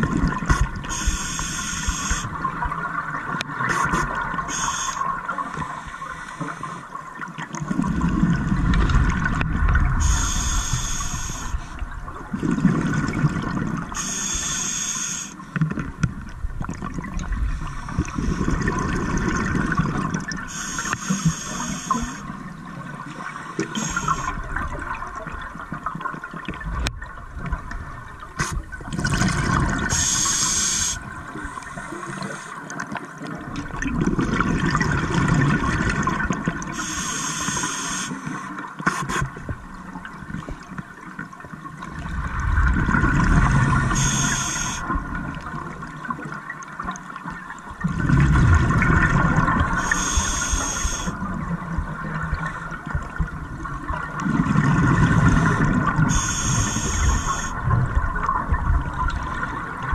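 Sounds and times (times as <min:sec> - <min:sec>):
exhaled bubbles rushing: 0:00.0 - 0:01.0, 0:07.4 - 0:10.3, 0:11.8 - 0:14.0, 0:15.8 - 0:20.5, 0:22.3 - 0:30.0, 0:31.0 - 0:36.8, 0:41.7 - 0:44.0, 0:44.8 - 0:50.4, 0:51.0 - 0:59.9
regulator hissing inhale: 0:00.9 - 0:02.4, 0:03.7 - 0:06.9, 0:10.0 - 0:11.8, 0:14.0 - 0:15.5, 0:17.4 - 0:18.6, 0:20.5 - 0:22.3, 0:23.2 - 0:24.4, 0:29.9 - 0:32.6, 0:36.7 - 0:39.2, 0:43.8 - 0:44.9, 0:49.8 - 0:51.2, 0:55.2 - 0:57.6.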